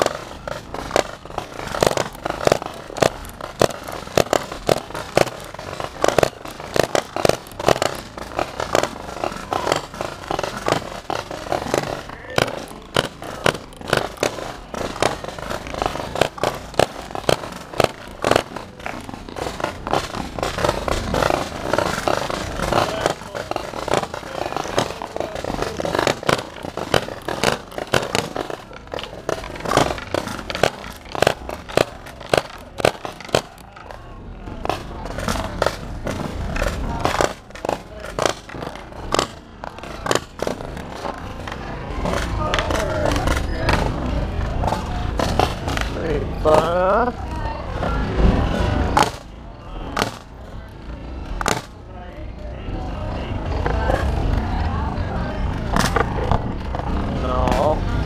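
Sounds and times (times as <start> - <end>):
paintball markers firing: 0.0 - 46.8
train car rolling noise: 0.0 - 52.0.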